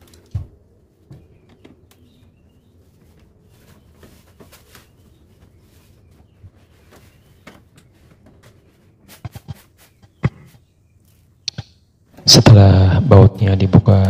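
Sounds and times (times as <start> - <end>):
sharp clicks: 11.4 - 11.8.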